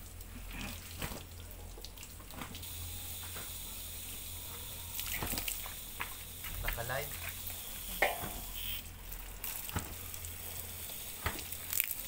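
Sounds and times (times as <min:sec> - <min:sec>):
water spraying from a hose: 0:00.0 - 0:12.0.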